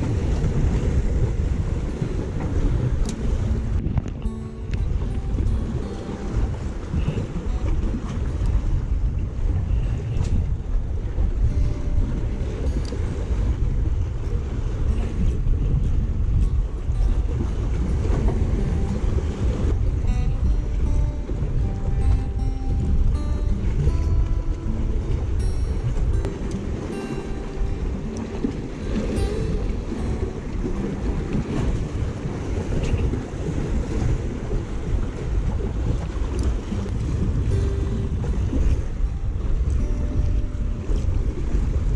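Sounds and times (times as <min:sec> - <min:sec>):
sea waves against breakwater: 0:00.0 - 0:41.9
wind buffeting microphone: 0:00.0 - 0:41.9
faint ticks: 0:36.3 - 0:37.1.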